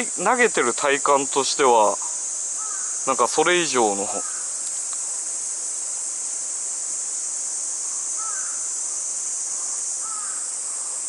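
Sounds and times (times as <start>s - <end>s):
insect chorus: 0.0s - 11.0s
bird calls: 2.0s - 3.1s, 4.0s - 4.7s, 7.8s - 8.7s, 9.5s - 11.0s.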